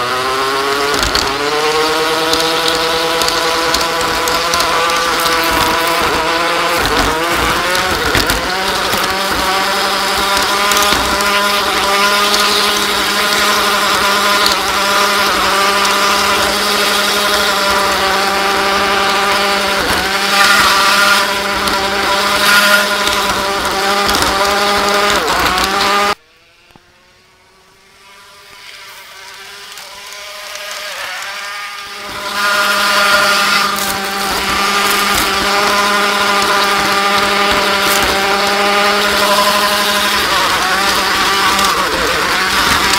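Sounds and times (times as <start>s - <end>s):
model train motor whine: 0.7s - 42.9s.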